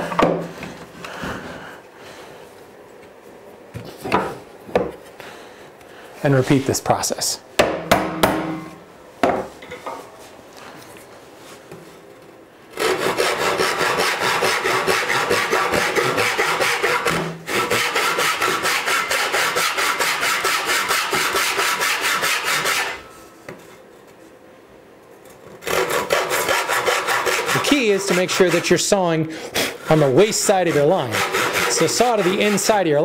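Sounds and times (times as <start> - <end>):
hand saw cutting wood: 12.8 - 23.0, 25.5 - 29.0, 29.6 - 33.0.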